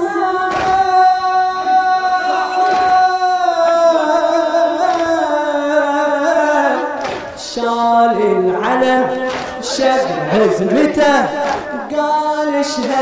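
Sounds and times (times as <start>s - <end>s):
man singing long note: 0.0s - 6.9s.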